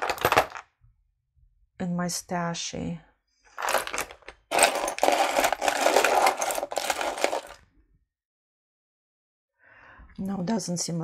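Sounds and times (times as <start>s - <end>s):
earrings rattling and clinking: 0.0s - 0.6s, 3.6s - 7.6s.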